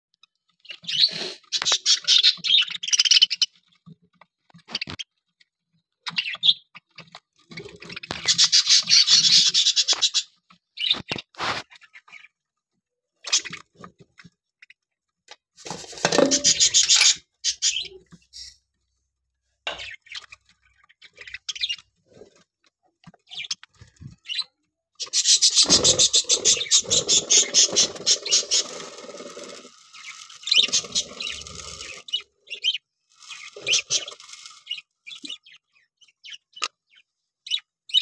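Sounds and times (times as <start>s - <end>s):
budgerigars warbling: 16.2s - 18.0s, 24.2s - 35.6s.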